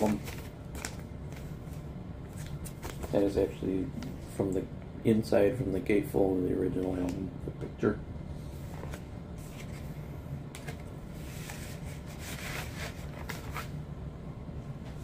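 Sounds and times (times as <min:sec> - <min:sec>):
vinyl records in sleeves rustling: 0:00.0 - 0:04.6, 0:08.5 - 0:13.8
steady low hum: 0:00.0 - 0:15.0.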